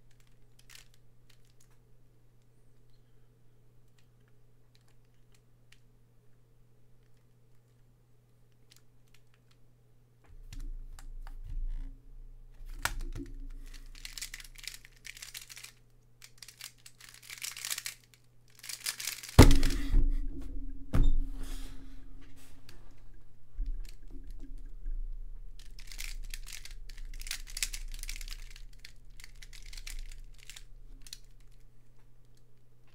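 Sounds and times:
plastic puzzle layers clacking: 0.0s - 1.8s, 12.6s - 19.9s, 23.6s - 31.7s
puzzle thumping down: 18.6s - 22.4s.

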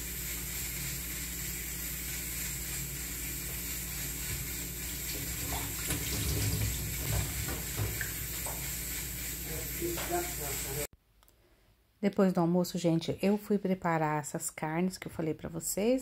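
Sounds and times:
tap running into sink: 5.1s - 8.7s.

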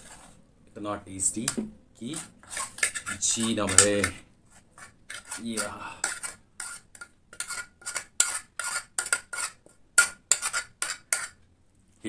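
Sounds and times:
metal spoon scraping metal pot: 2.0s - 11.4s.

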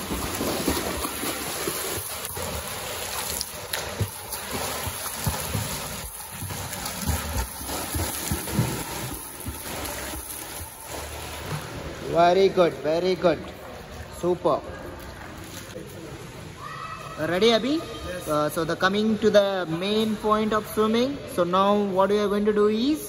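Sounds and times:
swimmer splashing in pool water: 0.0s - 11.8s.

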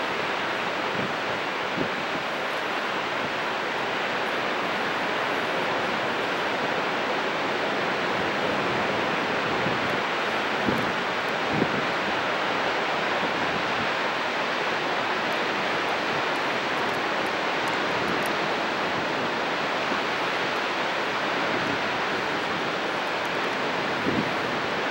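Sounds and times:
waterfall rushing: 0.0s - 24.9s.

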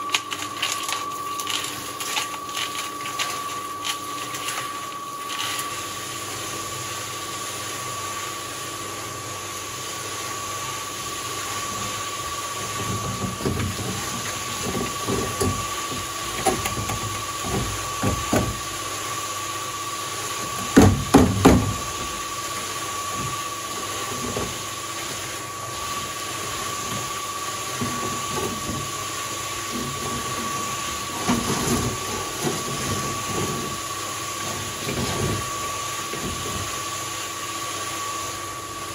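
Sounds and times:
cement mixer running: 0.0s - 38.9s
concrete clattering into wheelbarrow: 12.7s - 18.7s.

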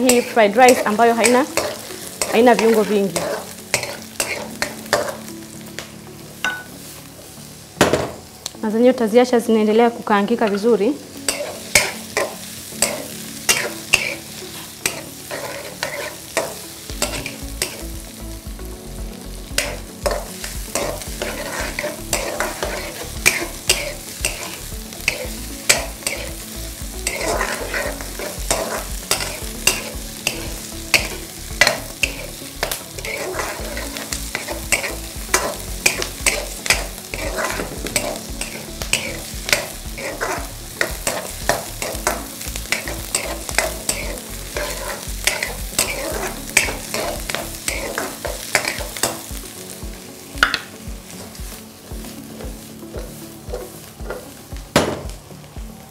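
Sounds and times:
spatula scraping and tapping pan: 0.0s - 5.2s, 11.3s - 14.2s, 14.8s - 17.9s, 19.5s - 26.4s, 27.0s - 49.3s, 52.4s - 54.9s
vegetables sizzling in a wok: 0.0s - 55.9s.

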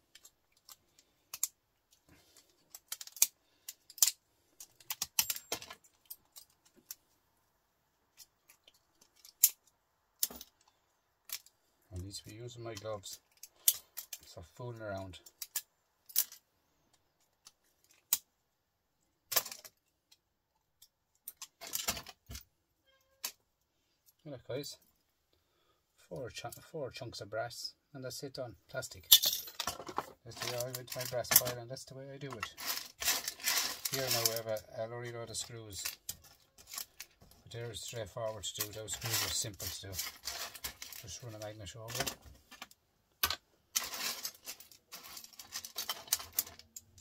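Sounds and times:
pliers cracking plastic: 0.1s - 1.6s, 2.7s - 5.5s
small pieces clattering: 32.3s - 34.4s, 43.8s - 47.0s.

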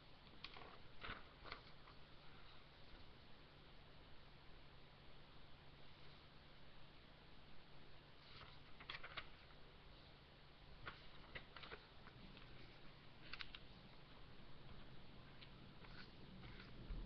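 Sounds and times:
room hiss and hum: 0.0s - 17.0s.

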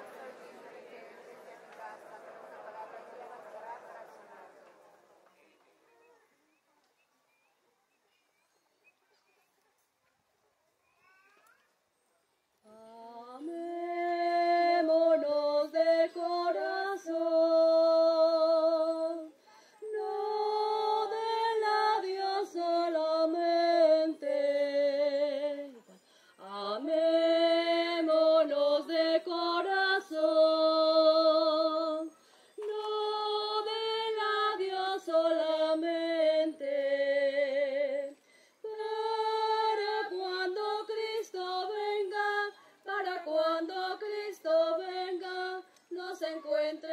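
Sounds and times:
person singing a hymn: 12.7s - 46.9s.

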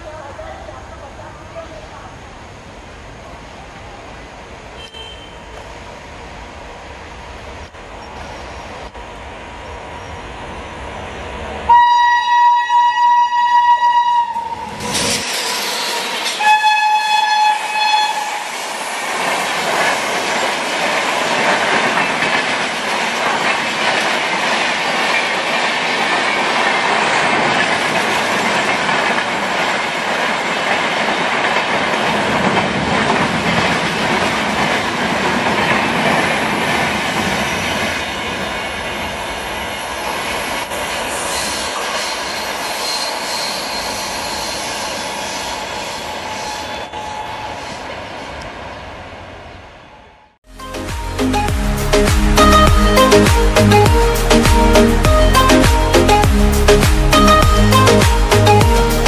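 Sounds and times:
train passing with loud rush: 0.0s - 59.0s
locomotive twin-tone horn: 4.8s - 5.6s, 11.7s - 15.0s, 15.8s - 18.6s
train wheels clacking on rails: 17.7s - 47.2s.

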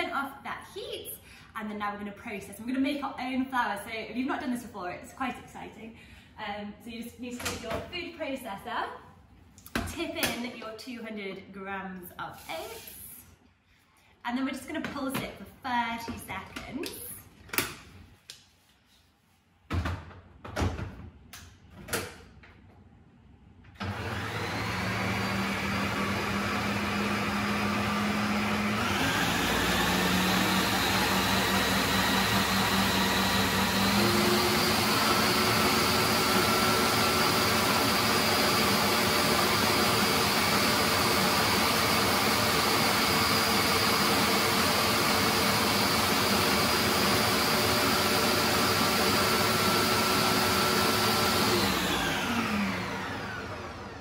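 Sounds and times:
food processor motor grinding: 23.8s - 54.0s.

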